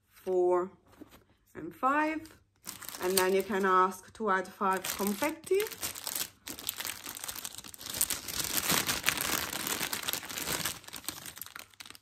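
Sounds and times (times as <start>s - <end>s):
plastic bag crinkling: 2.6s - 3.8s, 4.7s - 12.0s.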